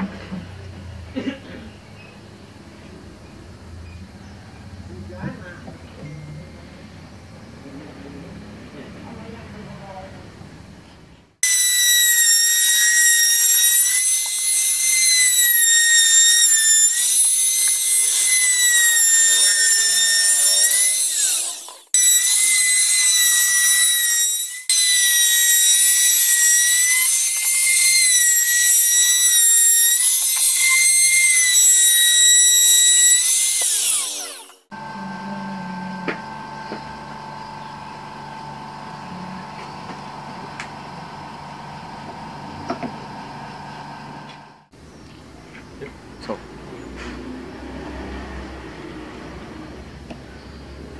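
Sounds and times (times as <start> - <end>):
router cutting wood whine: 11.4 - 44.6.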